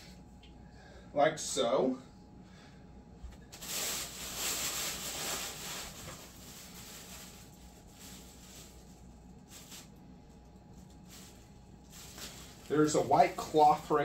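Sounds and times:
packaging rustling: 0:03.5 - 0:10.0, 0:10.8 - 0:13.6.

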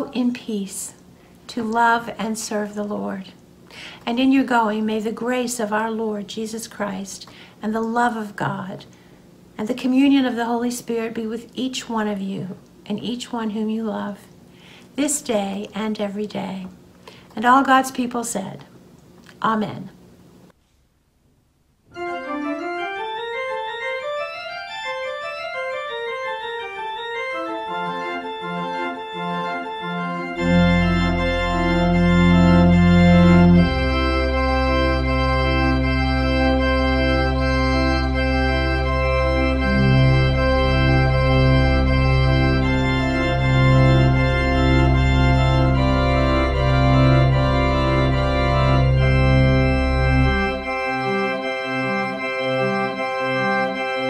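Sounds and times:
pipe organ playing: 0:21.9 - 0:54.0
deep organ pedal bass: 0:22.0 - 0:54.0.

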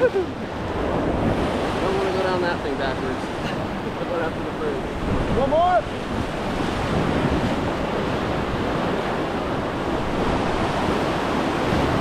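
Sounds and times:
river rushing through rapids: 0:00.0 - 0:09.2
wind rumbling on microphone: 0:00.0 - 0:12.0.

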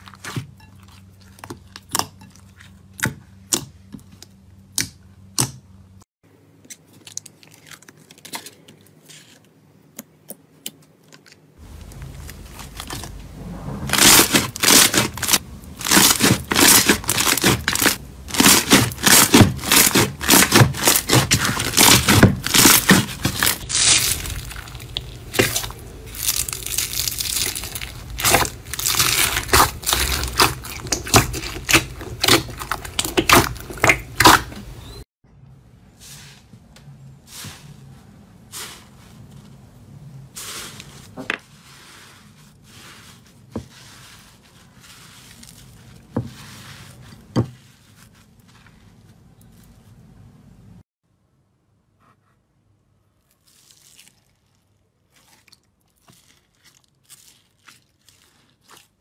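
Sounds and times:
slime popping and crackling: 0:13.9 - 0:34.6.

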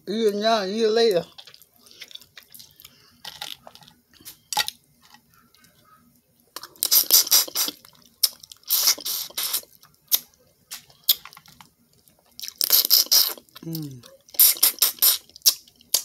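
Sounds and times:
wet slurping and sucking: 0:06.8 - 0:07.8, 0:08.6 - 0:10.2, 0:12.6 - 0:13.4, 0:14.4 - 0:16.0.

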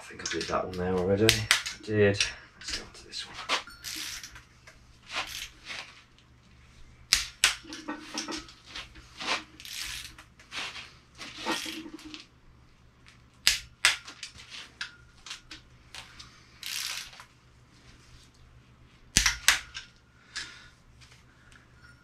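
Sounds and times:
torque wrench ratchet clicking: 0:16.6 - 0:17.2.

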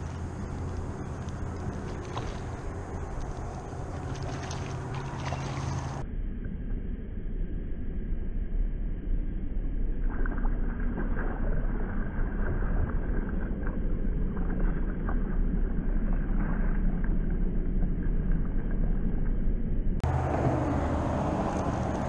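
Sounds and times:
water splashing against kayak: 0:00.0 - 0:06.0, 0:10.0 - 0:17.3
steady low rumble: 0:00.0 - 0:22.0.

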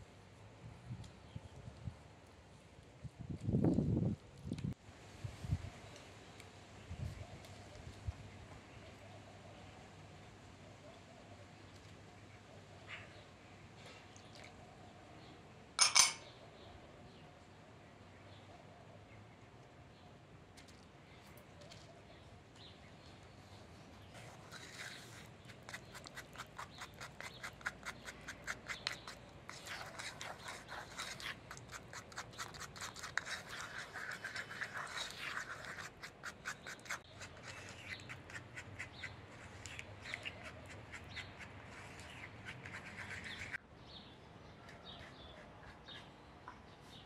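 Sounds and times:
brush scraping sauce in a bowl: 0:24.1 - 0:43.6
faint bird chirps: 0:36.6 - 0:47.0.

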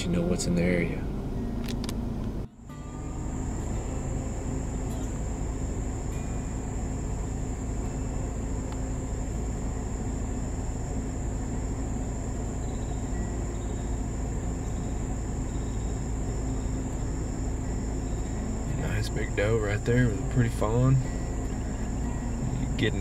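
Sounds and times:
car driving at low speed: 0:00.0 - 0:23.0
insects chirping: 0:00.0 - 0:23.0.

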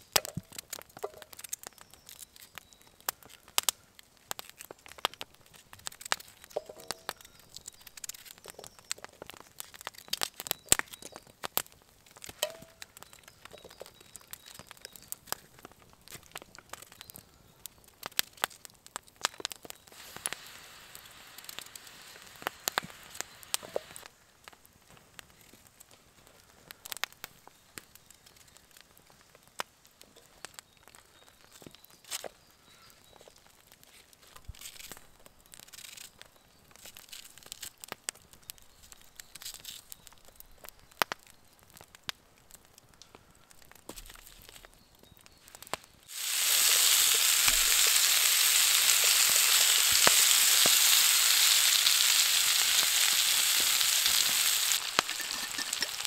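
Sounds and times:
log fire crackling: 0:00.0 - 0:56.0
soft hiss: 0:19.8 - 0:31.1, 0:45.4 - 0:56.0
pieces dropping into frying pan: 0:53.6 - 0:56.0.

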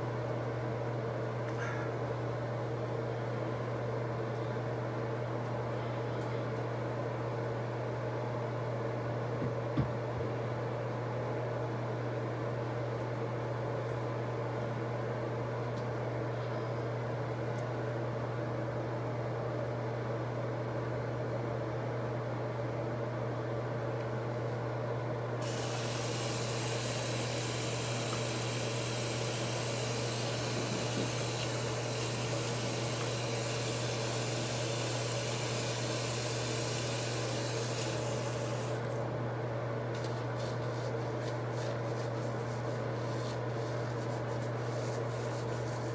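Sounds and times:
low mechanical hum: 0:00.0 - 0:45.9
hiss: 0:25.4 - 0:38.8
hands rubbing hair: 0:40.0 - 0:45.9.

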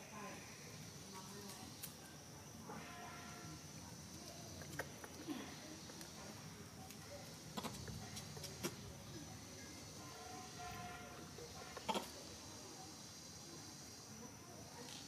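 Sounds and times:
low hiss: 0:00.0 - 0:15.0.

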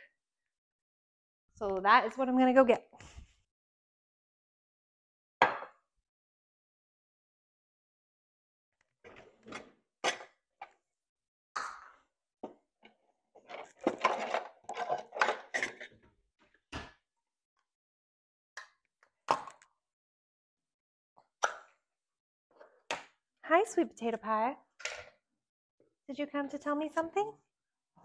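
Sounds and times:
objects knocking and clattering: 0:13.4 - 0:16.1.

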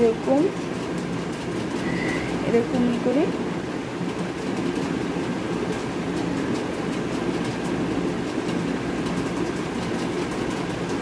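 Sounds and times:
low rumbling hum: 0:00.0 - 0:06.2.

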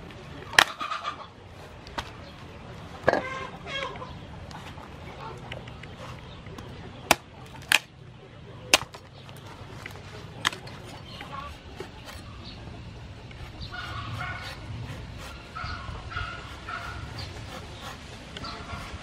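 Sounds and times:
cleaver chopping on wooden board: 0:08.7 - 0:09.0.

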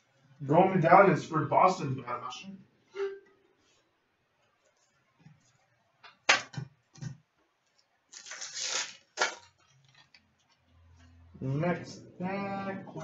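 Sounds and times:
card pack wrapper tearing: 0:08.1 - 0:10.2.

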